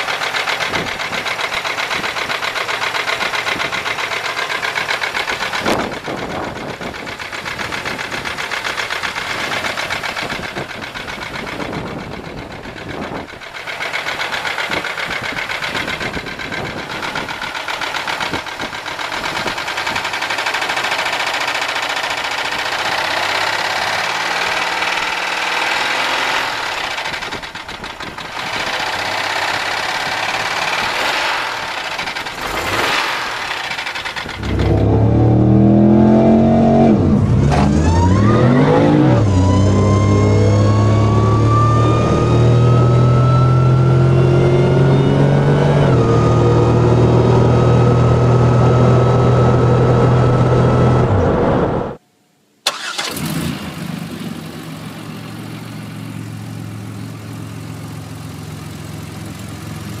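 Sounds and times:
car engine idling: 0.0 - 38.3, 52.6 - 60.0
car engine running: 0.0 - 52.0, 52.6 - 60.0
engine revving: 0.0 - 52.0, 52.7 - 57.7
engine whine climbing in pitch: 22.5 - 52.0.

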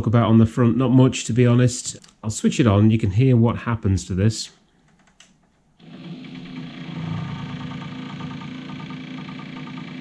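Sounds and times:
tape deck motor hum: 5.8 - 10.0.

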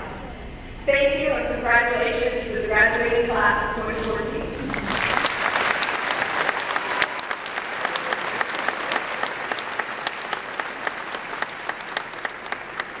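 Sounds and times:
audience applauding: 4.6 - 13.0.

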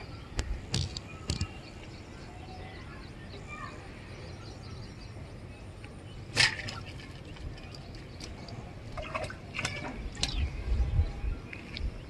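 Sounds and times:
fish splashing in water: 6.3 - 10.4.

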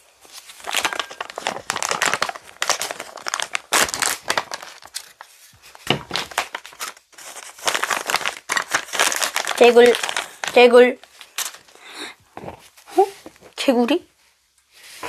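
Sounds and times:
plastic pouch crinkling: 0.2 - 11.8.

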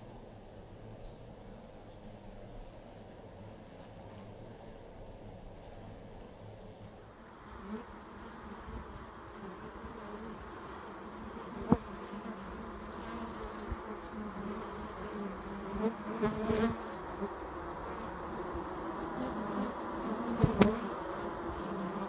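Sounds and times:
bees buzzing: 7.0 - 22.0.

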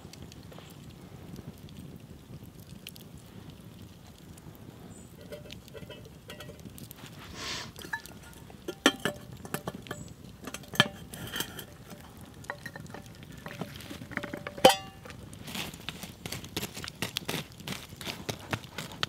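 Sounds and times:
metal can lid clinking: 5.2 - 6.7, 7.7 - 15.2.

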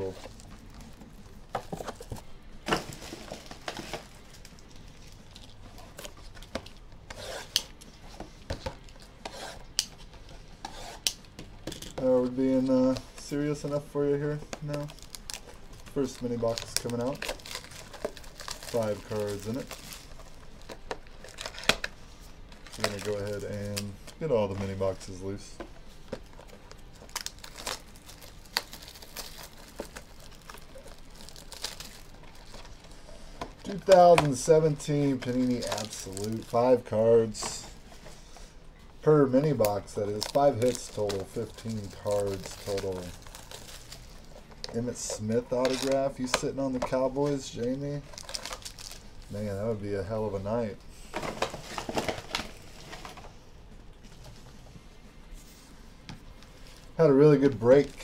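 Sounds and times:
plastic wrap crinkling: 12.5 - 37.5, 39.4 - 49.7.

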